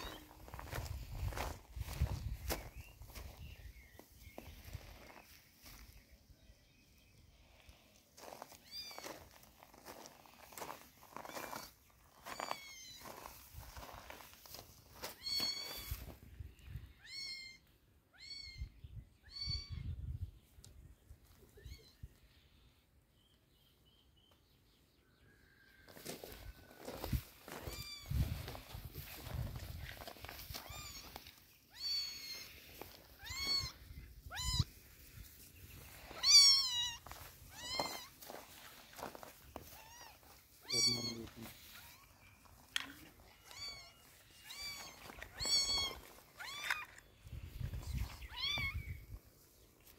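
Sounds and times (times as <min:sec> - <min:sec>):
kitten meowing: 0:15.2 - 0:15.9, 0:17.0 - 0:17.6, 0:18.2 - 0:18.7, 0:19.3 - 0:19.8, 0:27.7 - 0:28.2, 0:30.6 - 0:31.1, 0:31.7 - 0:32.5, 0:33.2 - 0:34.7, 0:36.2 - 0:38.2, 0:39.8 - 0:42.1, 0:43.2 - 0:46.9, 0:48.3 - 0:49.0.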